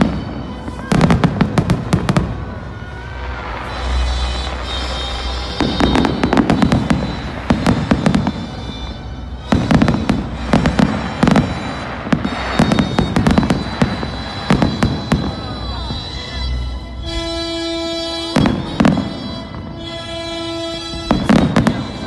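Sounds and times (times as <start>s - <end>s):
fireworks bangs and crackles: 0.0s - 22.0s.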